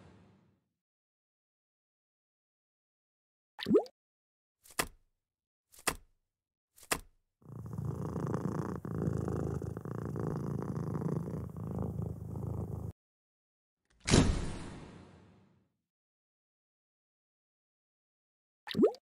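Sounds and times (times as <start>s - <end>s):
cat purring: 7.4s - 13.0s.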